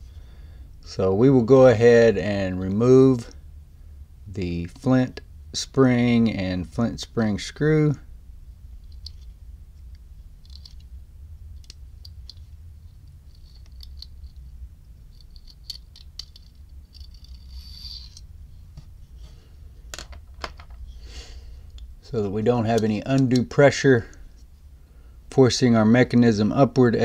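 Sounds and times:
small metallic clicks and scratches: 8.8s - 11.0s, 11.6s - 18.3s.

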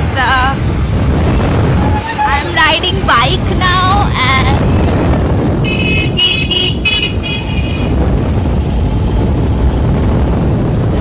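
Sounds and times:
wind and motorbike road rumble: 0.0s - 11.0s
vehicle horn short high blasts: 5.7s - 7.9s.

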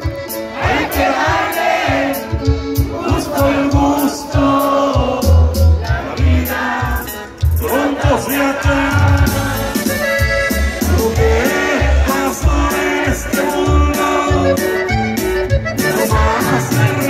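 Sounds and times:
accordion: 0.0s - 17.0s
crowd noise: 0.0s - 17.0s
electric bass and drums: 1.2s - 17.0s
person singing: 15.8s - 17.0s.

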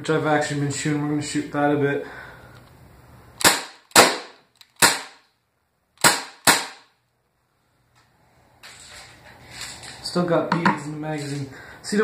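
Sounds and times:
air pistol shots cracking: 3.4s - 5.2s, 6.0s - 6.9s.

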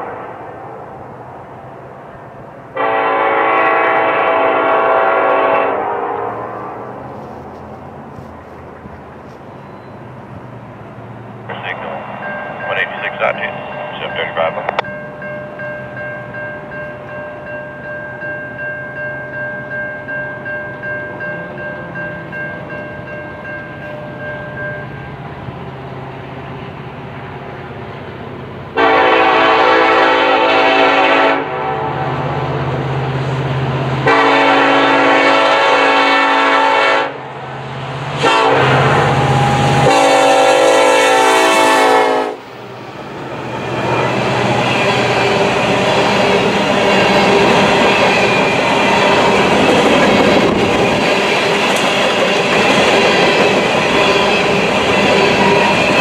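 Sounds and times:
train rumbling on rails: 0.0s - 56.0s
locomotive horn blasts: 2.8s - 7.0s, 28.8s - 31.9s, 34.0s - 37.3s, 38.2s - 42.4s.

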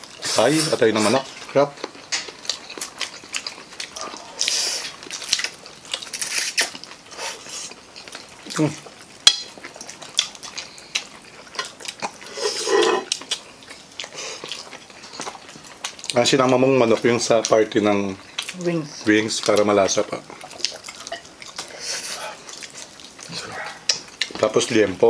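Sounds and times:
chewing: 0.0s - 25.0s
cutlery on plates: 12.4s - 13.1s.

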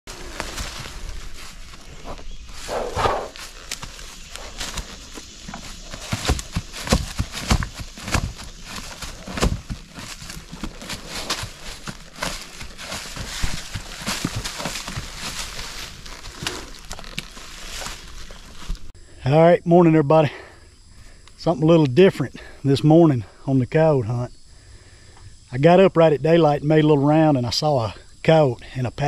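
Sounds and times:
mule hooves clopping: 0.1s - 18.9s.

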